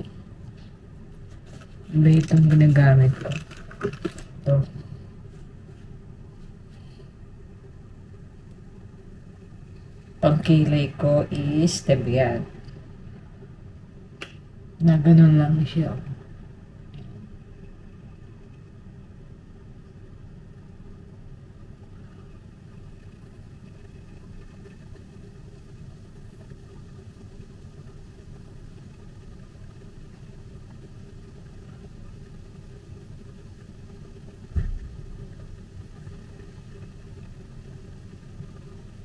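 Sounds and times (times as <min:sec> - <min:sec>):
low background rumble: 0:00.0 - 0:39.0
short thump: 0:34.5 - 0:35.0.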